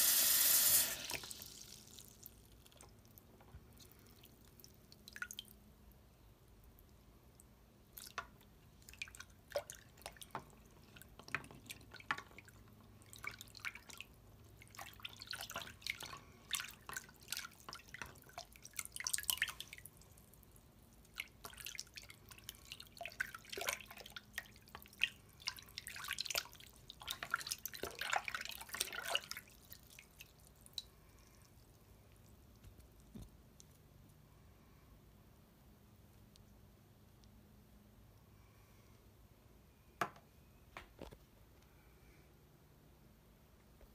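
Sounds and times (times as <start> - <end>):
water dripping and splashing: 7.4 - 30.9.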